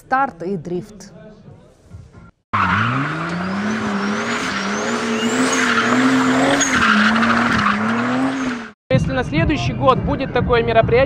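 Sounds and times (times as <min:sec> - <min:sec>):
car engine revving high: 0:02.6 - 0:08.8
tyres squealing: 0:02.6 - 0:08.8.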